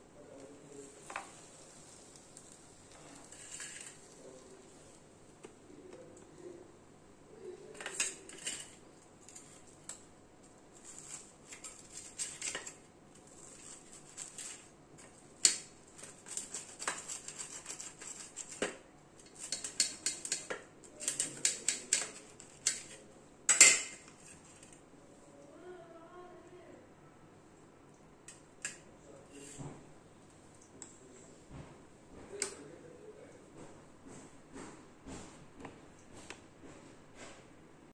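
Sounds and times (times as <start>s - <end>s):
scissors clinking on metal plate: 19.3s - 24.0s.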